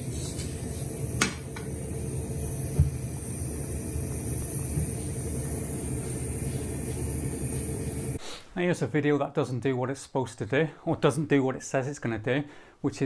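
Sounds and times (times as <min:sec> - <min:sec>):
water boiling in a pot: 0:00.0 - 0:08.2.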